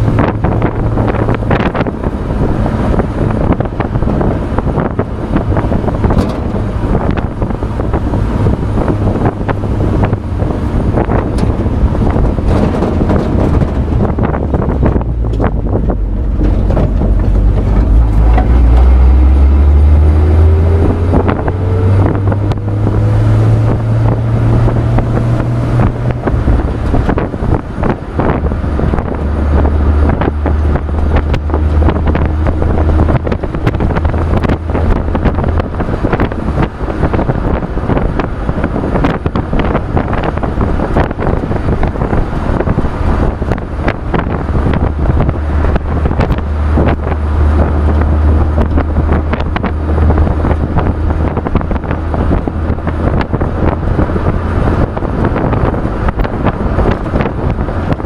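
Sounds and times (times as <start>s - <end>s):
truck engine: 0.0s - 58.0s
wind buffeting microphone: 0.0s - 58.0s
knocks and rattles: 6.0s - 7.2s, 10.9s - 19.0s.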